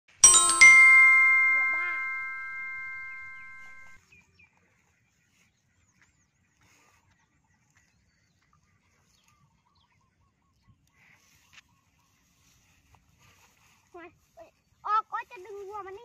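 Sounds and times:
bell-like chime: 0.1 - 4.0.

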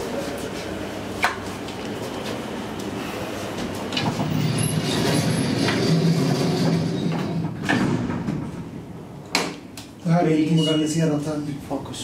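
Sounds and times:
elevator doors sliding shut: 3.7 - 9.0.

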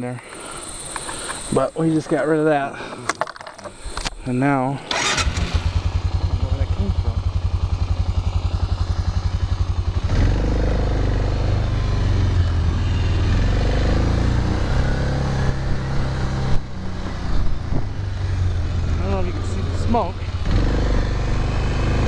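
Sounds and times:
quad bike engine revving: 4.9 - 22.0.

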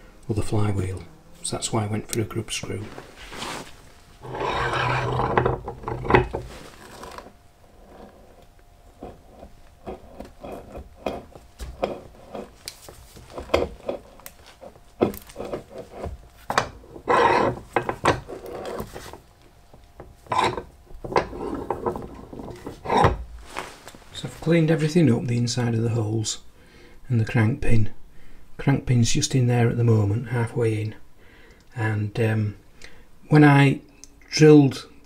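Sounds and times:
broach rasping scrape: 2.8 - 16.2, 17.0 - 19.2, 20.3 - 24.4.

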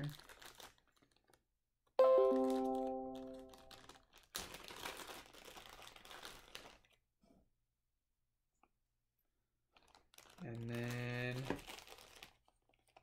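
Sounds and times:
ringing pitched note: 2.0 - 3.7
packaging rustling and clicking: 9.8 - 10.4, 11.4 - 13.0.

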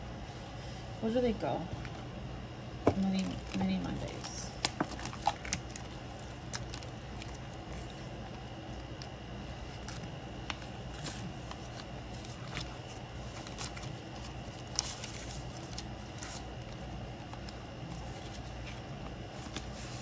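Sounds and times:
low background hum: 0.0 - 20.0
paper rustling: 9.6 - 20.0.

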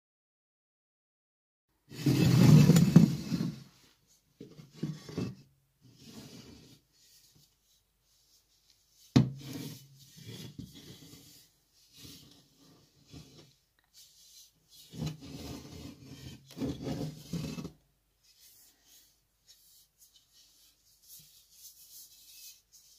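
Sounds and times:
metal helmet scraping on wood: 1.9 - 3.7, 4.4 - 6.8, 14.7 - 17.8.

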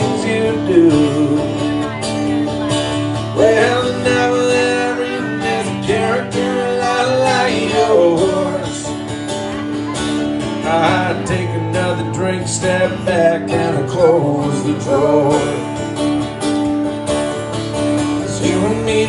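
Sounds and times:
person singing: 0.0 - 2.6, 3.4 - 9.0, 10.6 - 15.8, 18.2 - 19.0
acoustic guitars strumming: 0.0 - 19.0.

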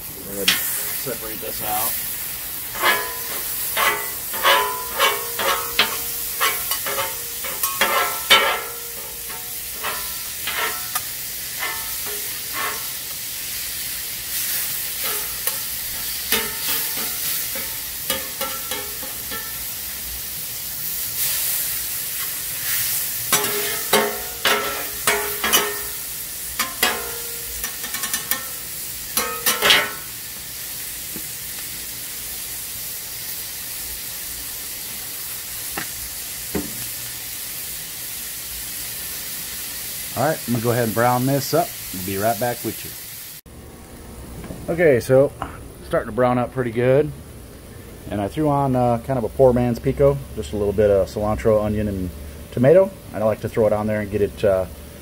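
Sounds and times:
meat sizzling on a griddle: 0.0 - 43.5
metal spatulas scraping and clattering: 0.4 - 1.1, 2.7 - 13.2, 14.3 - 19.6, 22.2 - 26.0, 26.6 - 28.6, 29.2 - 30.1.

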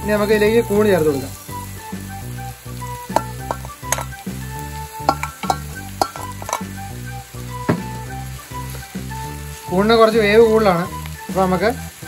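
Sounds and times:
food sizzling in a pan: 0.0 - 12.0
metal bowl tapping a pan: 3.1 - 4.3, 5.0 - 6.8, 7.7 - 8.0.

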